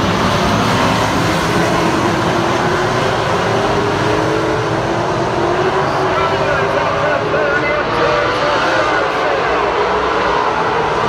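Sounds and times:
racing car engines: 0.0s - 11.0s.

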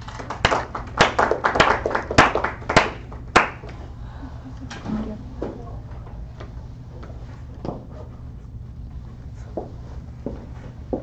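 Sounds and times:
people clapping: 0.0s - 3.8s
room hum: 0.0s - 11.0s.

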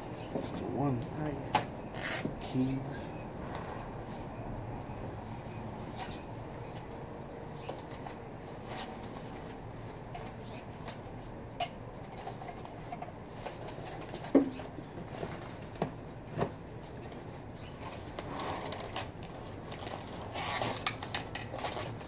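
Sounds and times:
plastic wrapping rustling: 17.8s - 22.0s.

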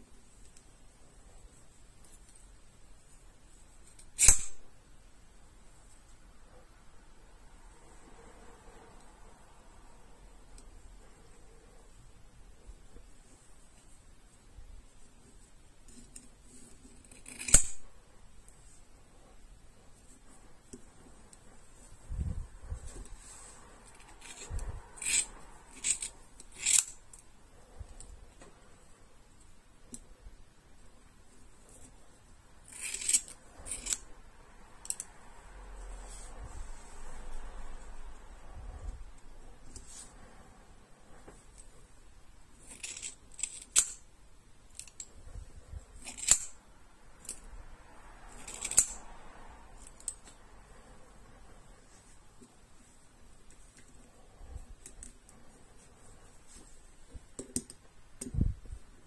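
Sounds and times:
scissors snipping hair: 48.3s - 49.1s.

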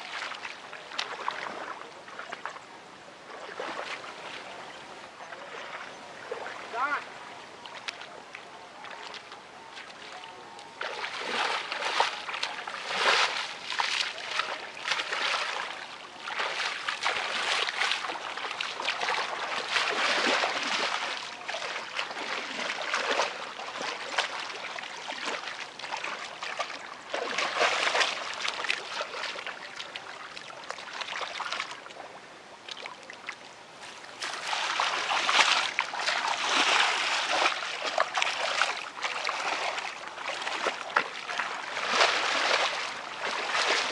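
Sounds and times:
feet wading through water: 0.0s - 43.9s.

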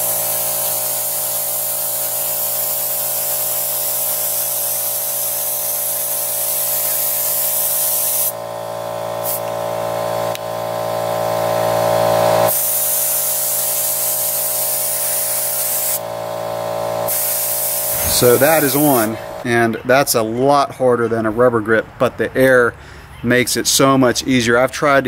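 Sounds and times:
compressed air hissing: 0.0s - 10.6s, 11.4s - 19.4s.

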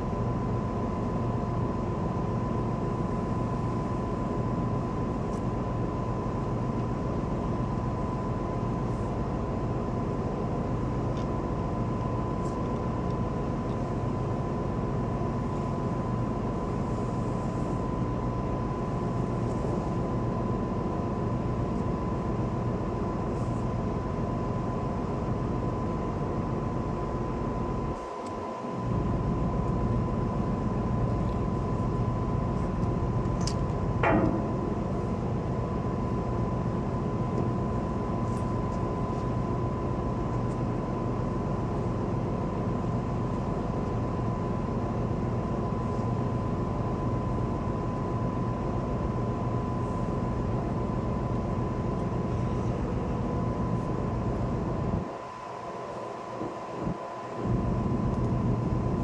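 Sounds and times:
ship engine drone: 8.1s - 46.0s.

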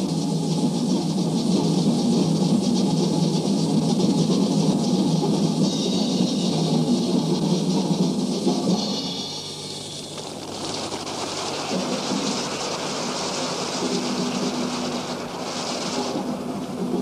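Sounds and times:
audience applauding: 10.2s - 16.7s.

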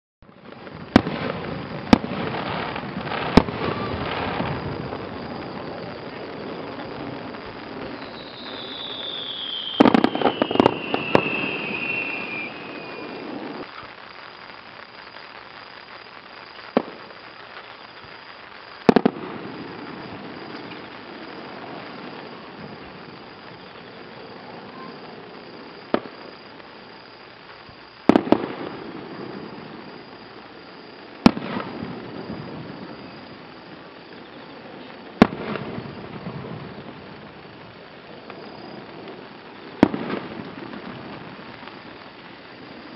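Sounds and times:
firework shells bursting: 0.6s - 13.9s
firework whistle falling in pitch: 3.1s - 13.8s.

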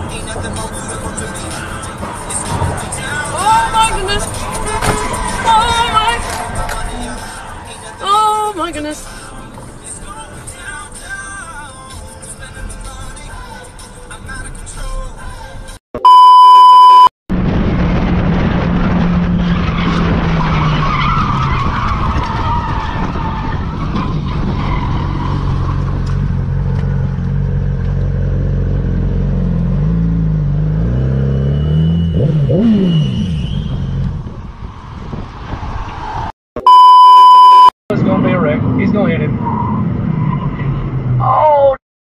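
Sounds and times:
loud electronic beep: 16.0s - 17.1s, 31.4s - 34.0s, 36.6s - 37.7s
wind noise rushing: 34.1s - 36.3s.

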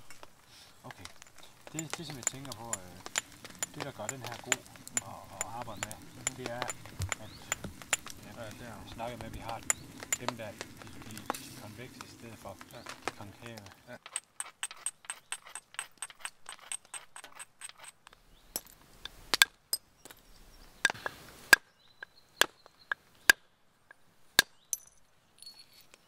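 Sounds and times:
light taps on flint: 0.9s - 17.3s
sharp clicks of flint strikes: 1.0s - 19.6s.

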